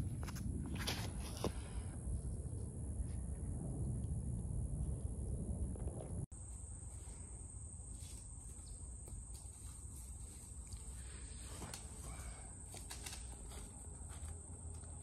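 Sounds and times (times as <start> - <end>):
low steady rumble: 0.0 - 8.2
insects droning: 6.3 - 15.0
footsteps on dirt: 8.0 - 15.0.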